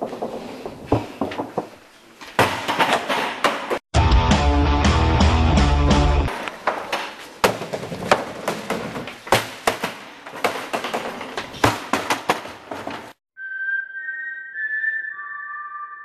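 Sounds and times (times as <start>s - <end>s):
trash cans thumping and knocking: 0.0s - 3.8s, 6.3s - 13.2s.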